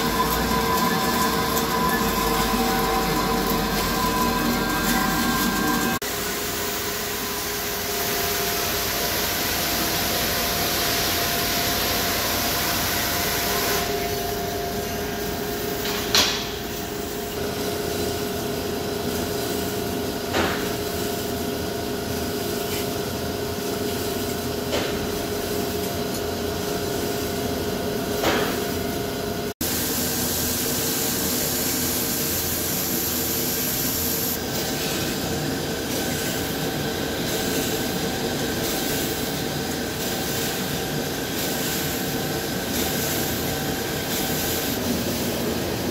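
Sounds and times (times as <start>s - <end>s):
lathe machining metal: 0.0s - 8.8s.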